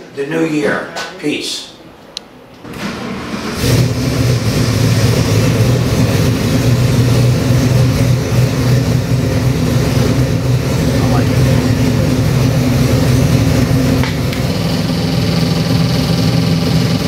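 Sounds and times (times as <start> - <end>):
car engine running steadily: 3.6 - 17.0.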